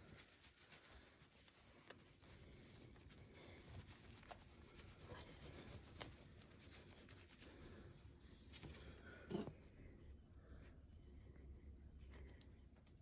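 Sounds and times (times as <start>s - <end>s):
towel rustling: 0.0s - 9.1s.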